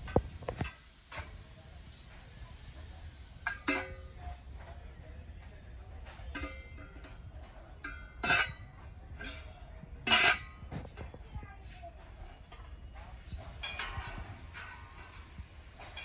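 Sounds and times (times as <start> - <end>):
brass kitchenware clinking: 6.0 - 10.7.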